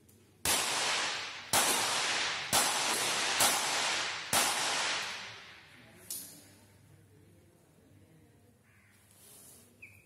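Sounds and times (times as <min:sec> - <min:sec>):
pistol shots with echo: 0:00.4 - 0:05.8.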